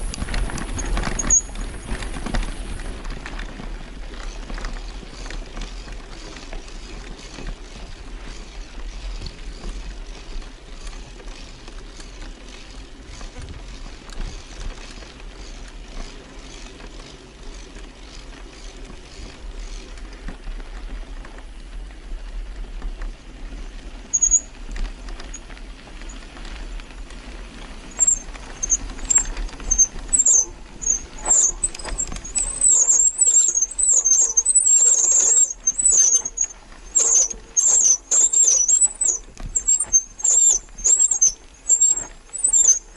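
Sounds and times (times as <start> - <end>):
bike rattling on rough ground: 0.0 - 42.9
low rumble of riding: 0.0 - 42.9
bicycle brakes squealing: 0.1 - 3.0, 24.0 - 26.7, 27.4 - 42.9.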